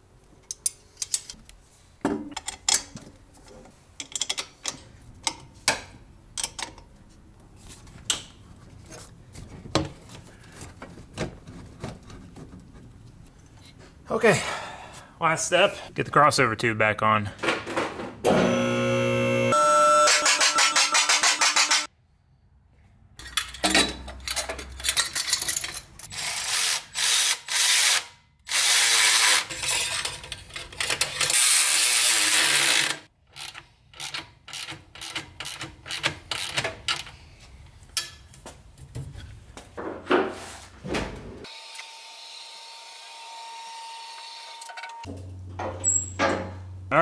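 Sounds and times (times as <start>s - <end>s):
ratchet clicking: 32.3s - 37.1s.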